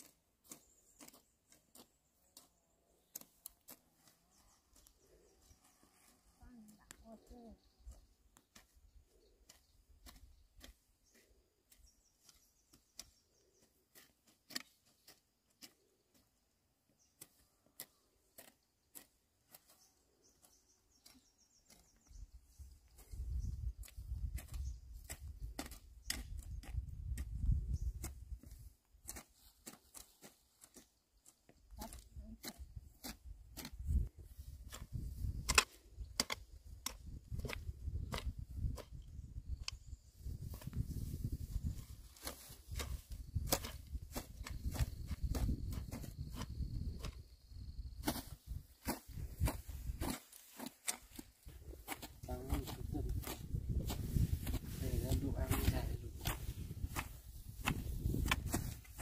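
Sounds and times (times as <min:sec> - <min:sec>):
hoes chopping into soil: 0:00.0 - 0:05.2, 0:07.9 - 0:16.4, 0:17.0 - 0:59.0
faint bird chirps: 0:04.0 - 0:14.0, 0:19.6 - 0:25.0.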